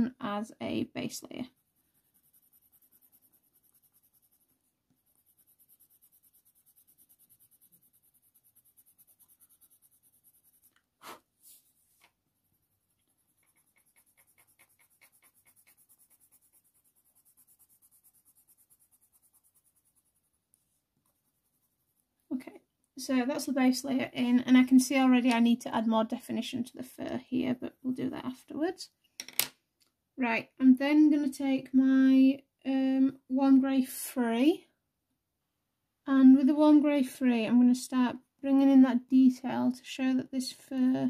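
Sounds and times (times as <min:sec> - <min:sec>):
pencil scratching on paper: 0:00.9 - 0:22.2.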